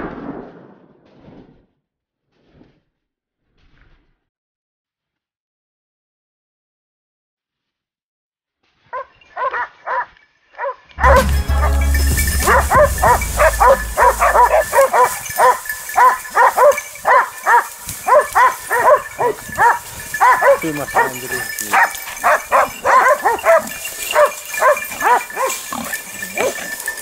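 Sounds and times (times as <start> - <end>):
dogs barking and baying: 9.0 - 27.0
low rumble: 11.0 - 14.8.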